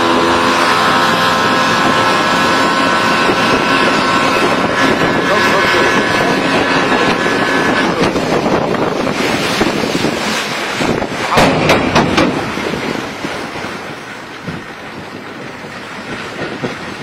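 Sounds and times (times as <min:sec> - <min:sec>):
outboard motor: 0:00.0 - 0:17.0
water rushing past hull: 0:00.0 - 0:17.0
wind buffeting microphone: 0:00.0 - 0:17.0
sharp knocks: 0:11.3 - 0:12.5.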